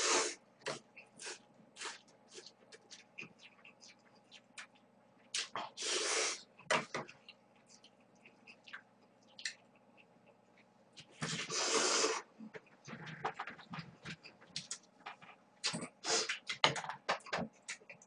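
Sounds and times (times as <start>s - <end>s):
person slurping noodles: 0.0s - 0.4s, 5.7s - 6.4s, 11.3s - 12.3s.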